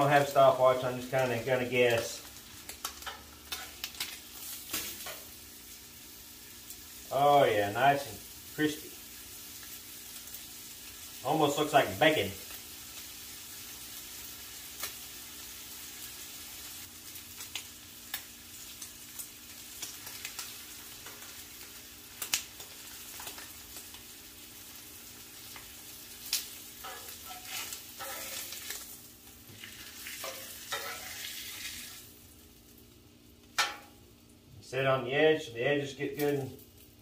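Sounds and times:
steak sizzling on griddle: 0.0 - 34.4
tongs clicking and scraping metal: 26.3 - 28.8.

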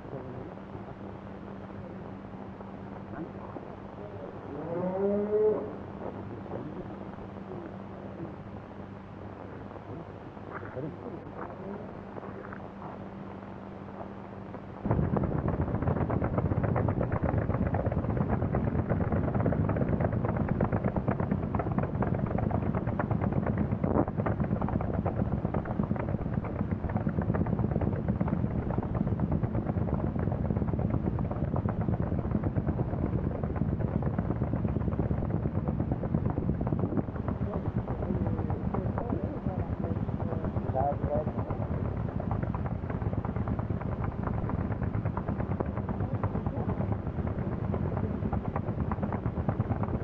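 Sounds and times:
tractor engines popping: 14.9 - 50.0.

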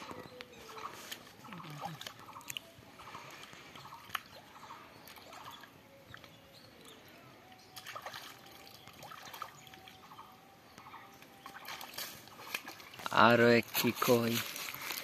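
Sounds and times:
hands sloshing in muddy water: 11.4 - 13.1.

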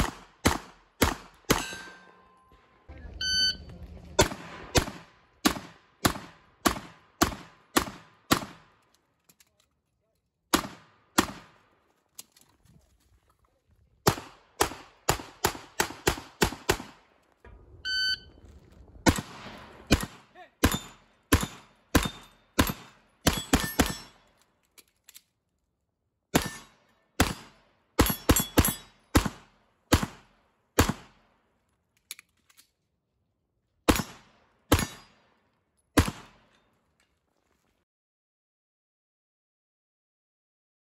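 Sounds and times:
pistol shots: 0.0 - 2.2, 4.2 - 8.8, 10.5 - 11.6, 14.0 - 17.1, 19.0 - 24.3, 26.4 - 31.3, 33.9 - 35.3, 36.0 - 36.5
brief ringing tone: 3.2 - 3.7, 17.8 - 18.3.

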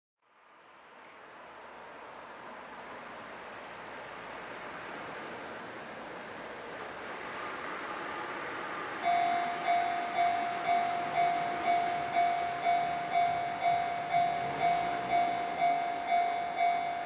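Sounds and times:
insects singing high-pitched note: 3.2 - 17.0
rushing background noise: 7.0 - 17.0.

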